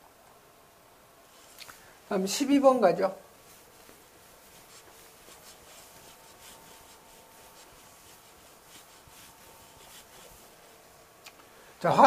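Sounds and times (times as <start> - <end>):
eraser rubbing on board: 4.3 - 10.6.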